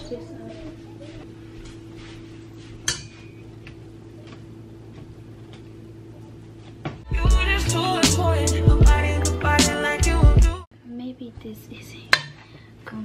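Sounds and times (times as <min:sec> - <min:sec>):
loud hip-hop music: 0:07.1 - 0:10.6.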